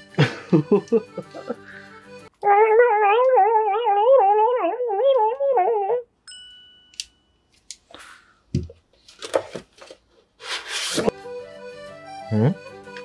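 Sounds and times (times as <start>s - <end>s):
background music melody: 0.0s - 4.0s, 11.1s - 13.0s
bright bell-like ding: 6.3s - 7.5s.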